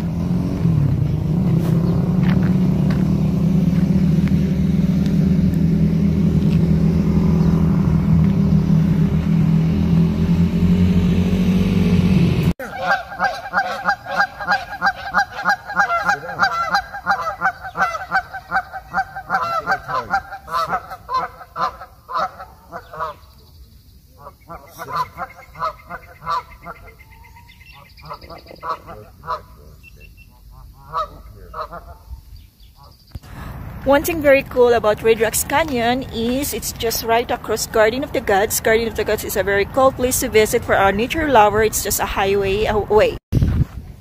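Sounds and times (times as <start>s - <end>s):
low engine drone: 0.0s - 21.7s, 33.2s - 43.2s
geese honking: 12.6s - 23.4s, 24.2s - 32.1s.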